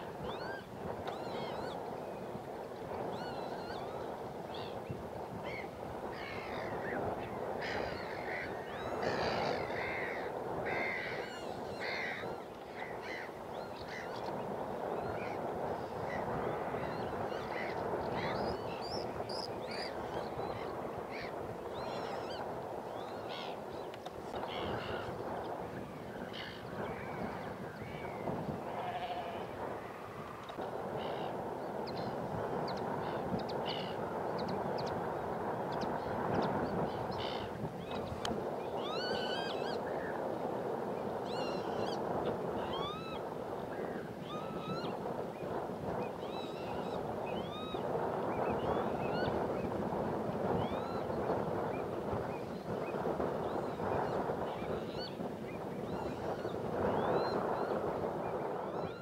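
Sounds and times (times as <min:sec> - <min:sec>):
gulls calling: 0:05.5 - 0:14.4
steady rushing noise: 0:22.4 - 0:38.8.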